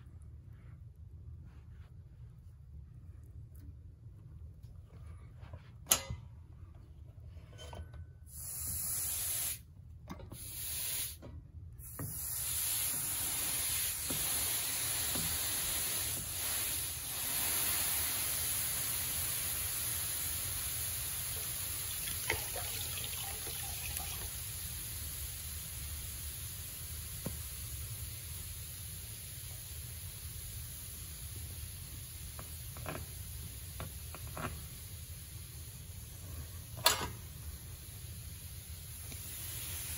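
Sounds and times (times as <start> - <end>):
hot iron hissing: 8.3 - 9.6, 10.4 - 11.2, 11.8 - 39.9.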